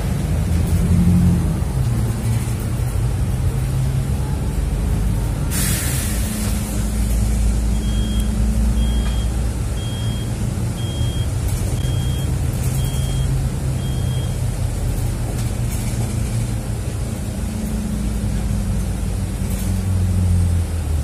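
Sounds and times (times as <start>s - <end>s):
bus engine running: 0.0s - 21.0s
compressed-air hiss: 5.5s - 7.0s.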